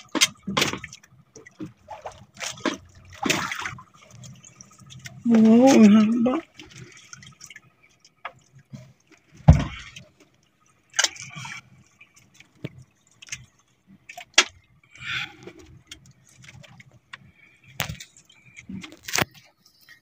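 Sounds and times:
thump on boat: 0.0s - 1.0s, 8.7s - 10.0s
knocks and rattles of fishing gear: 0.0s - 6.0s, 6.6s - 20.0s.

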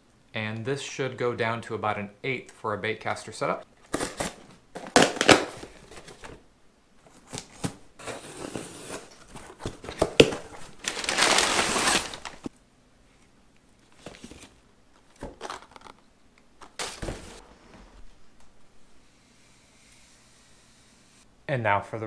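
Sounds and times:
cardboard box handling: 7.1s - 12.5s
packing material crinkling: 8.3s - 12.5s, 13.9s - 17.4s.

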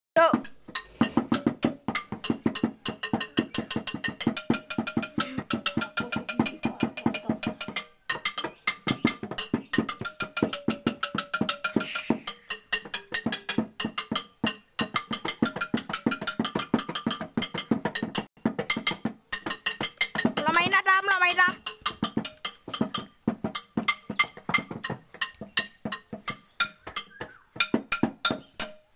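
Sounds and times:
fast percussion music: 0.2s - 28.9s
held melodic tones: 0.2s - 28.9s.

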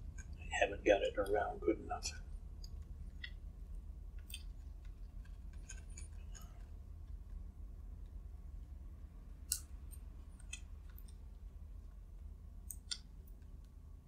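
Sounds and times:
low steady hum: 0.0s - 14.0s
adhesive tape clicks and crackles: 2.6s - 8.2s.

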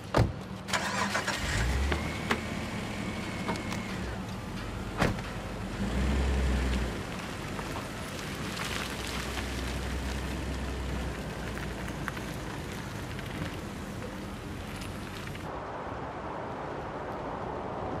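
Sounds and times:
car engine rumbling: 0.0s - 15.5s
car door shutting: 5.0s - 5.3s.

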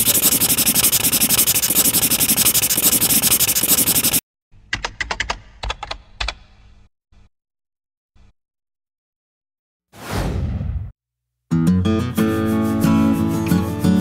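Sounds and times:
marker scribbling on paper: 0.0s - 4.2s.

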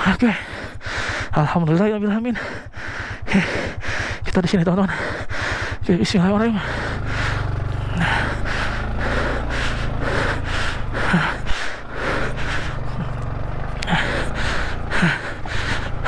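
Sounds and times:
person breathing hard: 0.0s - 1.6s, 2.3s - 13.2s, 13.8s - 16.0s
motorcycle engine idling: 0.0s - 16.0s
person grunting: 6.4s - 13.2s, 13.8s - 16.0s.

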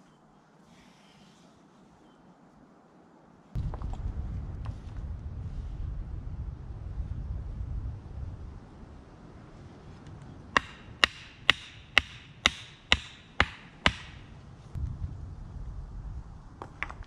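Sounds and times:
hammer knocking wooden stake: 10.6s - 14.3s.

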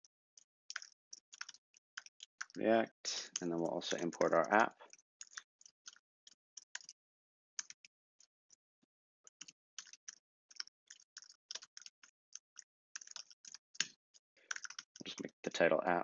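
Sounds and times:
typing on computer keyboard: 0.7s - 2.6s, 3.3s - 7.0s, 9.3s - 15.3s.

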